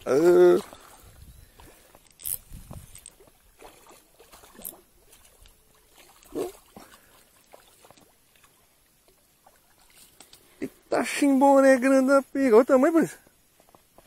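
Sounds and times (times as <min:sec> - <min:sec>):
fish splashing in water: 0:03.0 - 0:08.6.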